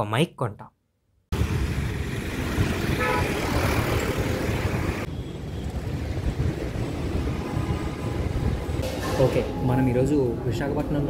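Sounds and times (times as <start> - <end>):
wind buffeting microphone: 4.5 - 9.1.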